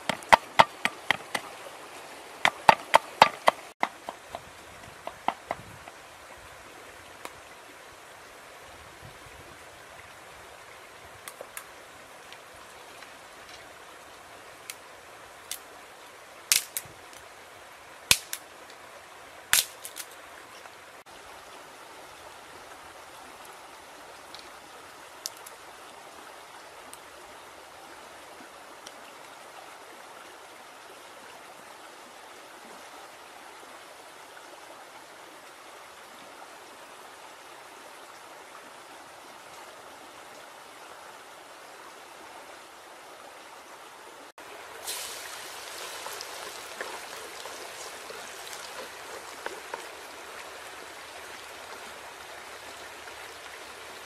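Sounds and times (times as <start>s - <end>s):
sharp clicks and knocks: 0.0s - 1.5s, 2.4s - 4.4s.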